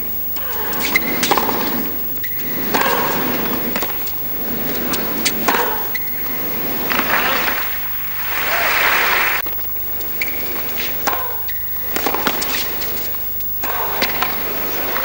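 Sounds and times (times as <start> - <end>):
tennis ball struck by rackets: 0.4 - 9.4, 10.1 - 15.0
crowd applauding: 6.7 - 9.4.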